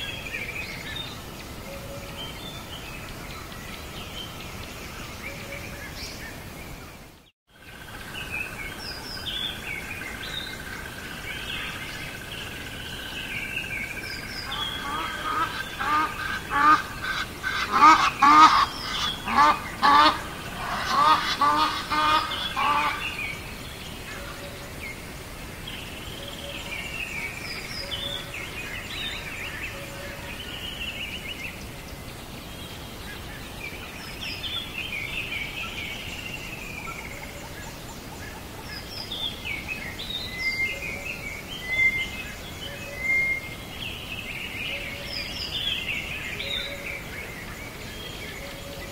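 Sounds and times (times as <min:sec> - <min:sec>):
birds calling: 0:00.0 - 0:48.9.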